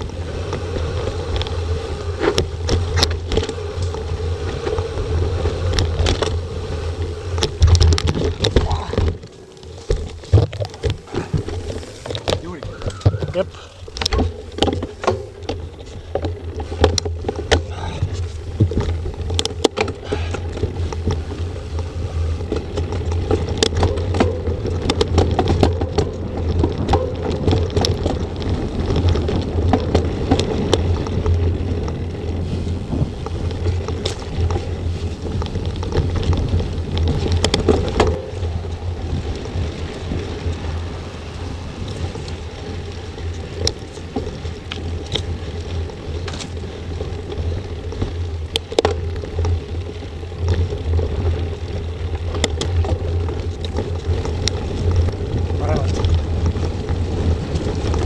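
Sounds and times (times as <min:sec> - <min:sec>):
bike rattling and clicking: 0:00.0 - 0:58.0
bike tyres on gravel: 0:00.0 - 0:58.0
wind buffeting microphone: 0:00.0 - 0:58.0.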